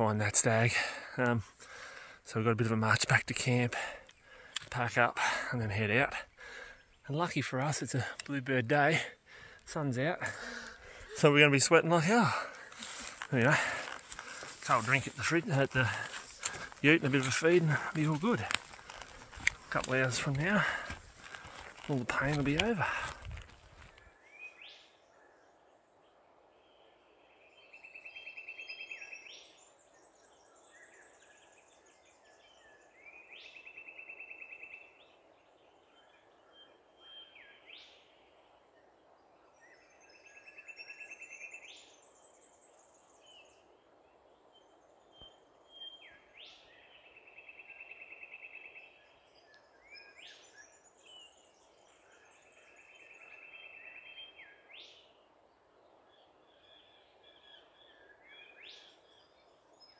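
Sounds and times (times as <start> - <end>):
background hiss: 0.2 - 33.5.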